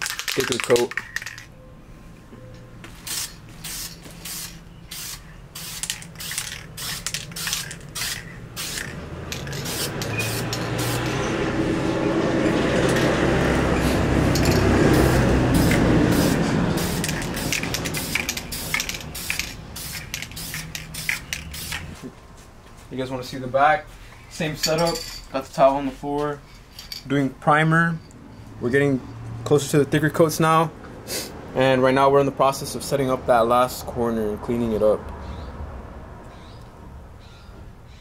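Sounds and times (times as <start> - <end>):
spray paint can hissing: 3.0 - 11.2, 13.8 - 22.0.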